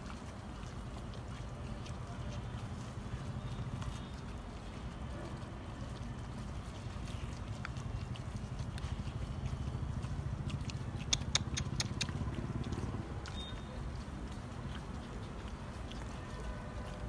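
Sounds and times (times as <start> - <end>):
dogs chewing: 0.0 - 17.0
sharp clicks: 11.0 - 13.6.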